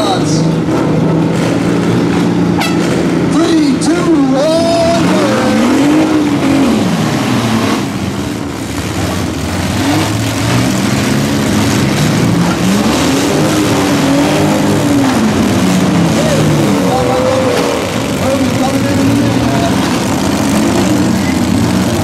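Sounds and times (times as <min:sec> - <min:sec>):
truck engines revving hard: 0:00.0 - 0:22.0.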